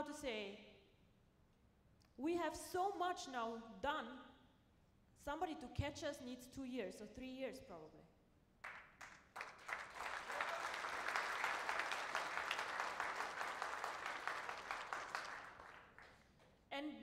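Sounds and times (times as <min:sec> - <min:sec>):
audience applauding: 0:08.6 - 0:16.2.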